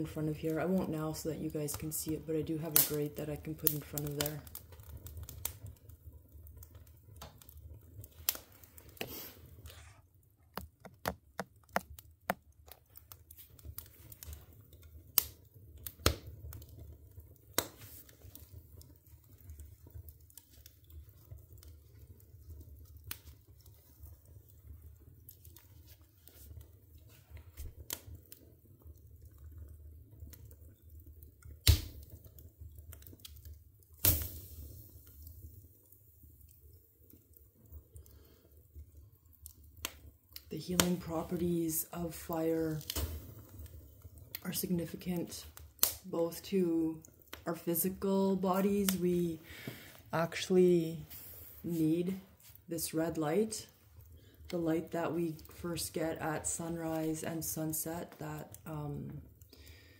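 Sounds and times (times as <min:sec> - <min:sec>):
firewood crackling and popping: 0:00.0 - 0:59.9
loud fire pops: 0:02.6 - 0:06.0, 0:13.3 - 0:18.4, 0:31.4 - 0:35.6, 0:45.3 - 0:46.1.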